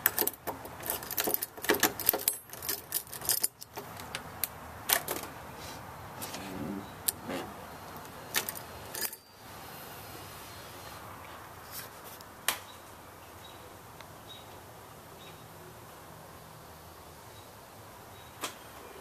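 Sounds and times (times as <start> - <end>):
keys rattling in door lock: 0.0 - 3.8, 8.3 - 9.3.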